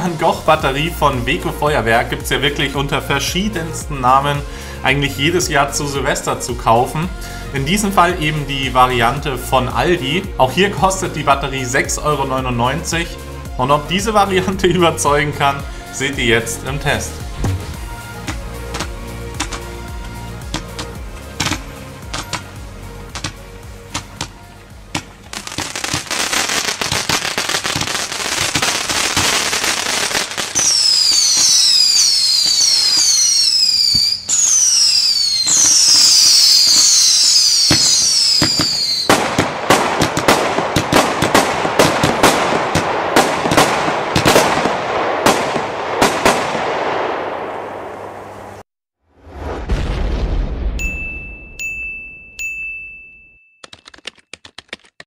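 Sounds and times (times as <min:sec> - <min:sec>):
firework sharp cracks: 0:20.5 - 0:22.5, 0:23.2 - 0:48.1
firework crackling: 0:23.2 - 0:48.6
firework whistles falling in pitch: 0:25.4 - 0:39.2.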